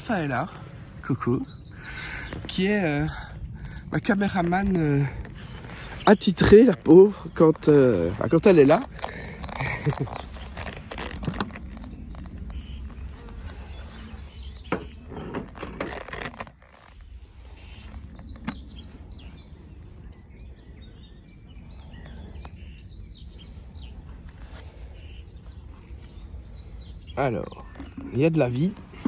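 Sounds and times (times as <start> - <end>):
steady low rumble: 0.0 - 15.6
birds chirping: 0.0 - 29.0.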